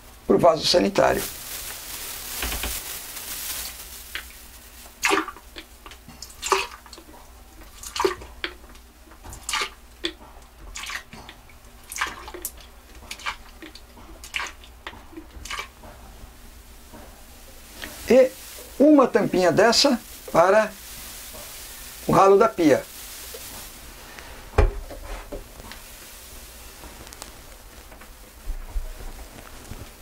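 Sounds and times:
liquid splashing into toilet bowl: 4.1 - 15.8.

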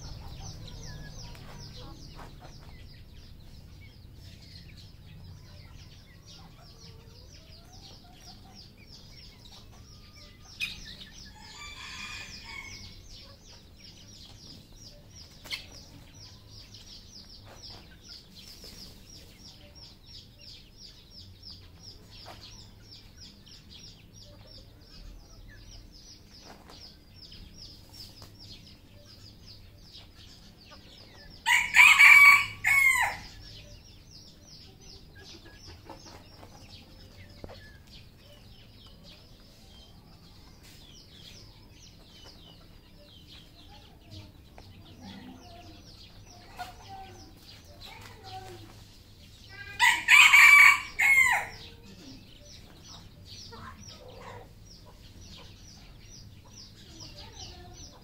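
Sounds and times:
rooster crowing: 31.4 - 33.3, 49.8 - 51.6.

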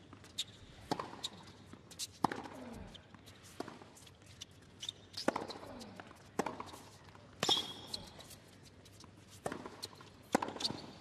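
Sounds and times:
tennis racquets striking ball: 0.8 - 1.2, 2.2 - 2.6, 9.4 - 10.9.

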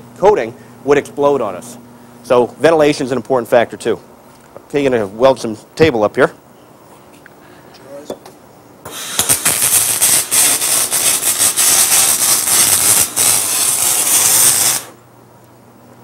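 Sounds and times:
arc welding crackle: 8.8 - 15.0.

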